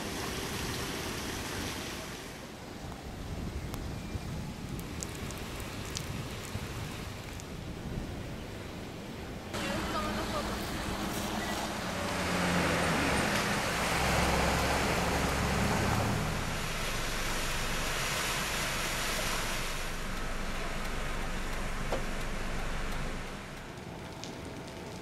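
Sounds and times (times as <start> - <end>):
car engines running: 9.6 - 25.0
tyres splashing through water: 9.6 - 25.0.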